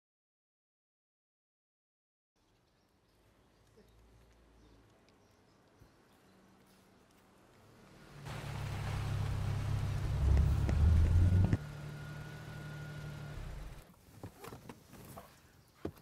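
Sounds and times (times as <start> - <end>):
car engine: 7.5 - 13.8
engine whine: 7.8 - 13.8.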